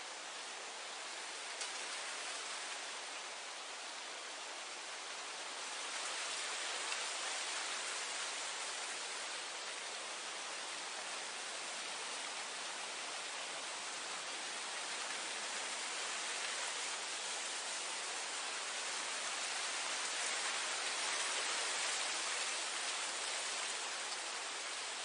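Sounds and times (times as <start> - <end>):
wind blowing through grass: 0.0 - 25.0.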